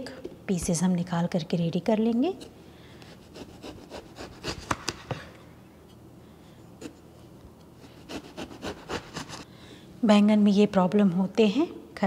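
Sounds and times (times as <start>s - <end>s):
knife slicing on cutting board: 3.3s - 5.2s.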